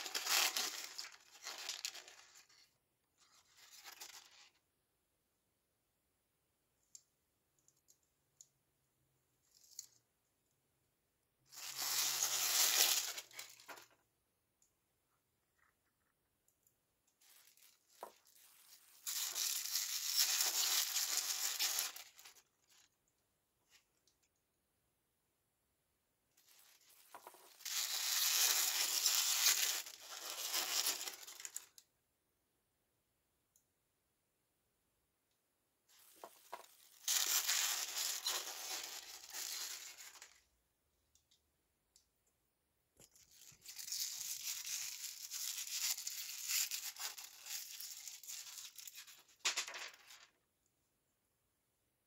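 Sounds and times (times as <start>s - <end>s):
wrapping being torn open: 0.0s - 2.2s, 36.6s - 40.4s
tissue paper crinkling: 0.0s - 4.6s, 11.5s - 13.9s, 17.2s - 22.9s, 26.4s - 31.7s, 35.9s - 40.4s, 43.3s - 50.2s.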